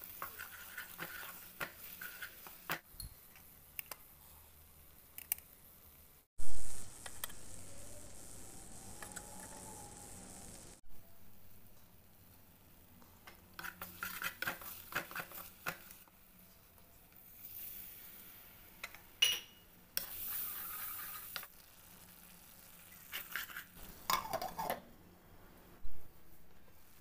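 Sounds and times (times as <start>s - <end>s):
wooden spatula scraping a pan: 0.0s - 2.8s, 13.6s - 16.0s, 20.0s - 21.5s, 23.0s - 23.8s
frying hiss: 0.0s - 10.8s, 11.5s - 24.9s.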